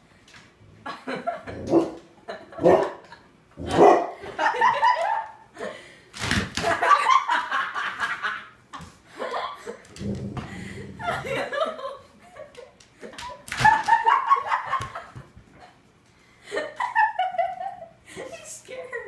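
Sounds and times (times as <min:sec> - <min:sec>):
people laughing: 0:04.2 - 0:05.8, 0:06.6 - 0:09.9, 0:10.5 - 0:15.8, 0:16.4 - 0:18.2.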